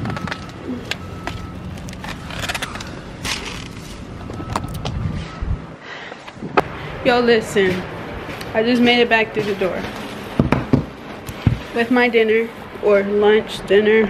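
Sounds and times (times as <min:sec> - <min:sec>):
plastic bags rustling: 0:00.0 - 0:04.2.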